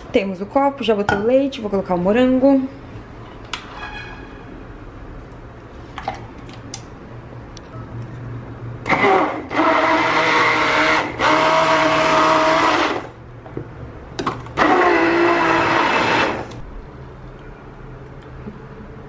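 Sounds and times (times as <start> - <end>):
immersion blender whizzing: 8.9 - 13.1, 14.6 - 16.6.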